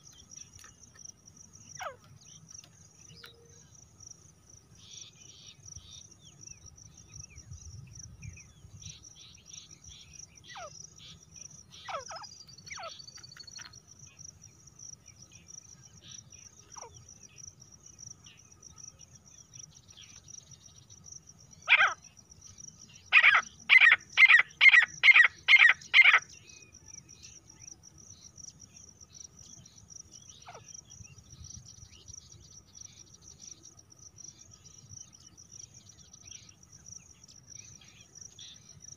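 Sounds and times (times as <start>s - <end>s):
crickets chirring: 0.0s - 38.9s
francolin calling: 8.3s - 13.8s, 20.9s - 22.2s, 22.8s - 27.7s.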